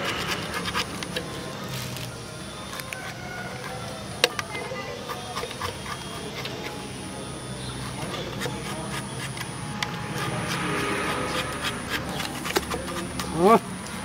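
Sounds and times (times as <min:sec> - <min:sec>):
scratchy hiss: 0:00.0 - 0:02.8
stick scraping grease: 0:00.0 - 0:14.0.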